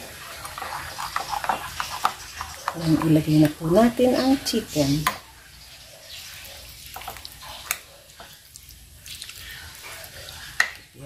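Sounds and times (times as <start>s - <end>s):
wet batter squelching: 0.0s - 11.0s.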